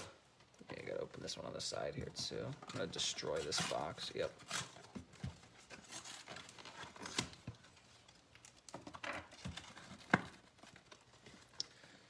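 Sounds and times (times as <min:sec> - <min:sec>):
cardboard box tearing and rustling: 0:03.0 - 0:07.8.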